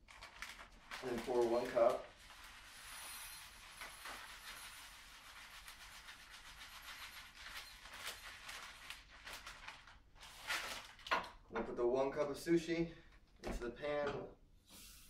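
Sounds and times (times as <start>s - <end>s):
plastic bag crinkling: 0.0s - 11.4s
rice pouring into a cup: 0.5s - 7.1s.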